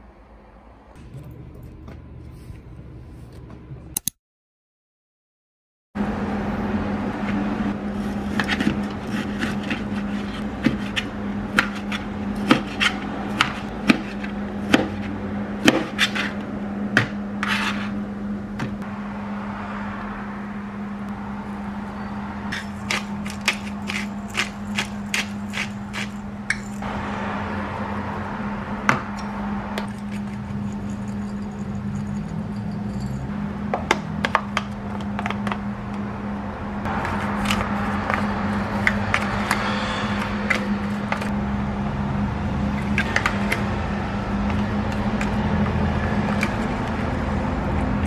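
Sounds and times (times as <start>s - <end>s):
steady low hum: 0.0s - 4.0s, 6.0s - 48.0s.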